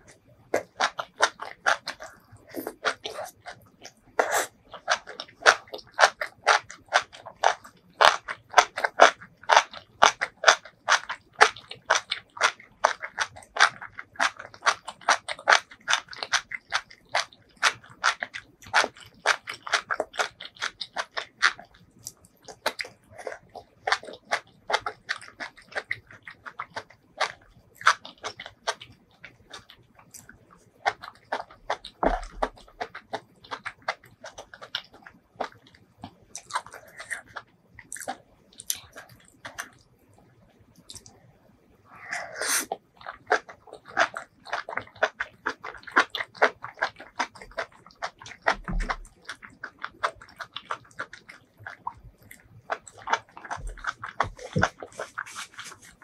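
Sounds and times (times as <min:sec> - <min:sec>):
crisp crunching while chewing: 0:00.0 - 0:39.9, 0:40.8 - 0:41.2, 0:42.0 - 0:56.0
wet mouth clicks: 0:40.8 - 0:41.2.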